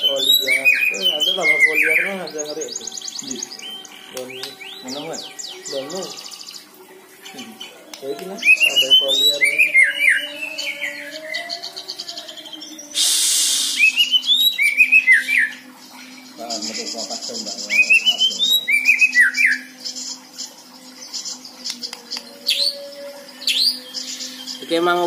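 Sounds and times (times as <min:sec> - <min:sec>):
bird whistling song: 0:00.0 - 0:06.7, 0:07.3 - 0:24.8
brief hissing burst: 0:13.0 - 0:14.0.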